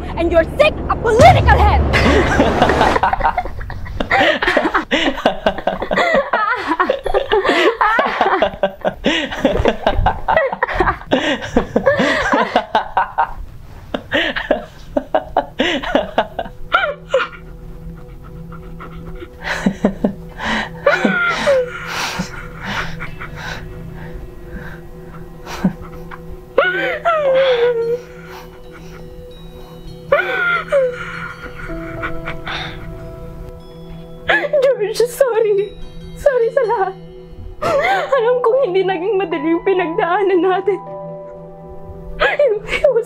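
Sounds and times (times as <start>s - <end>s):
man laughing: 2.0s - 13.4s, 14.0s - 17.5s, 20.8s - 24.1s, 25.1s - 29.2s, 30.1s - 33.0s.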